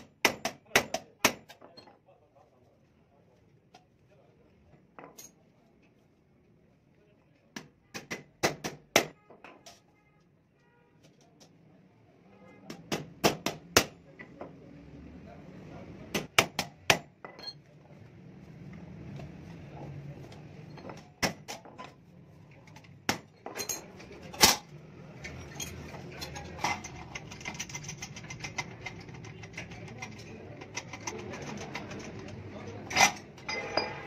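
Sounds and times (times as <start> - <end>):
metal parts clinking: 17.2 - 17.6, 23.3 - 34.0.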